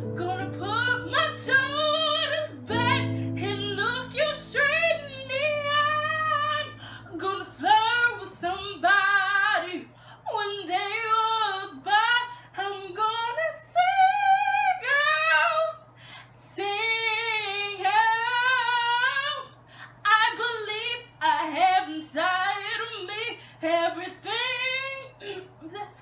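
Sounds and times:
woman singing unaccompanied: 0:00.0 - 0:15.8, 0:16.4 - 0:26.0
singer breathing: 0:06.7 - 0:07.1, 0:09.9 - 0:10.2, 0:15.9 - 0:16.4, 0:19.6 - 0:20.0.

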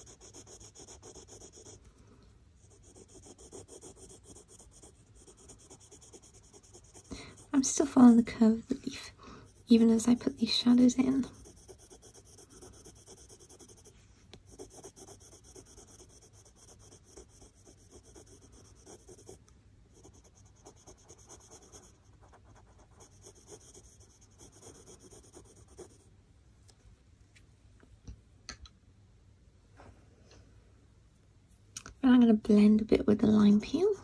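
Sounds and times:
pencil scratching on paper: 0:00.0 - 0:01.9, 0:02.6 - 0:08.1, 0:09.4 - 0:26.0.

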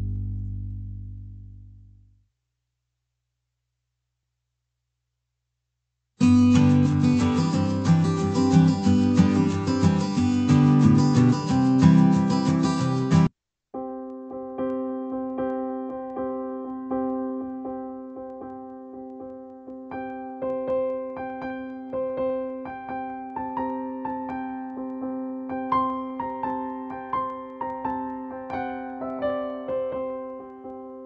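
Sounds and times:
slow piano music: 0:06.2 - 0:31.0.

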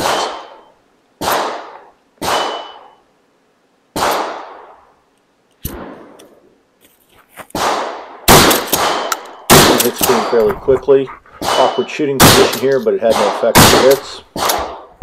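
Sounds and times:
gunshots with echo: 0:00.0 - 0:03.0, 0:04.0 - 0:04.7, 0:07.5 - 0:10.5, 0:11.4 - 0:14.9
steel target ringing: 0:02.2 - 0:03.0.

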